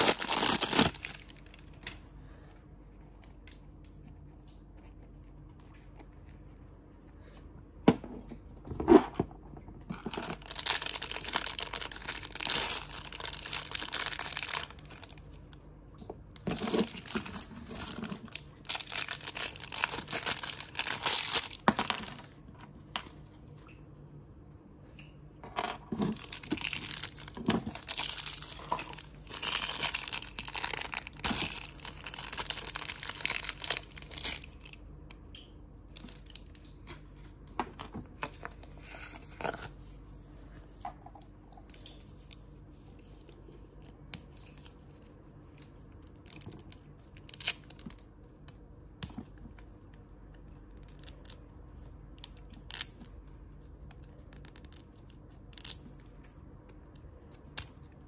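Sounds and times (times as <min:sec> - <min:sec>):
plastic wrappers crinkling and tearing: 0:00.0 - 0:02.1, 0:09.8 - 0:15.6, 0:16.4 - 0:22.5, 0:25.9 - 0:34.8, 0:35.9 - 0:36.5, 0:44.3 - 0:48.1.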